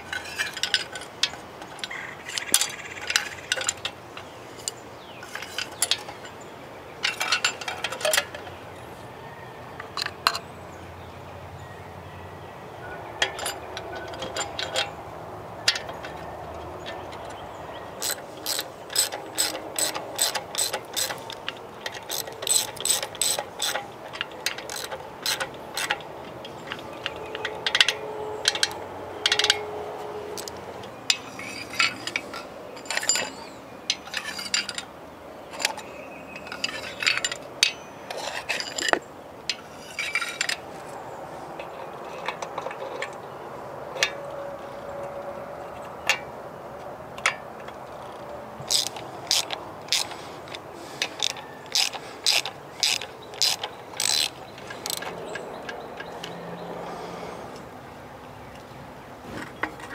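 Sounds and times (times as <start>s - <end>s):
ratchet wrench clicking: 18.0s - 29.6s, 48.7s - 55.5s.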